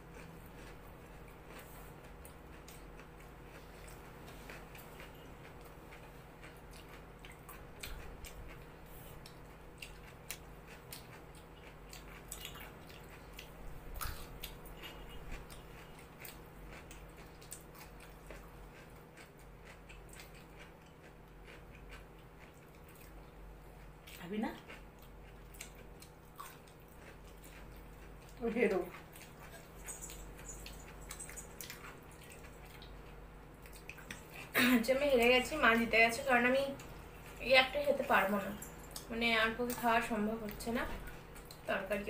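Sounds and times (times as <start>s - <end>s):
people chewing: 0.0s - 41.7s
low steady hum: 0.0s - 42.0s.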